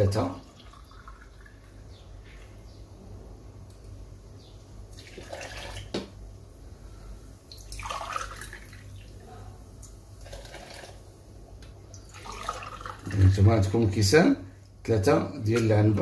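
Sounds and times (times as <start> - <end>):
water pouring into a glass: 0.3 - 1.9, 4.9 - 5.9, 7.5 - 9.2, 10.2 - 11.0, 11.9 - 13.4.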